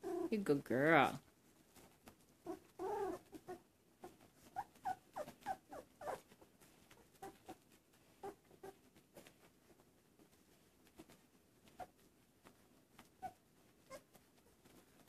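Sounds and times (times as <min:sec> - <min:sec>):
puppies squeaking: 0:02.5 - 0:06.2.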